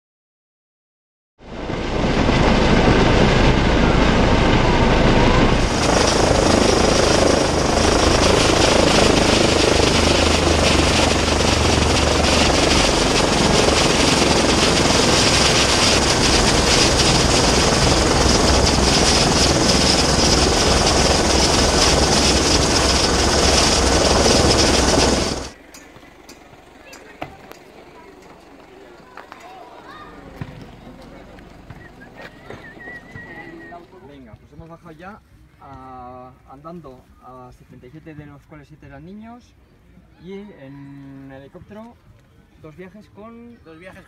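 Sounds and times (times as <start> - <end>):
helicopter idling: 1.4 - 34.2.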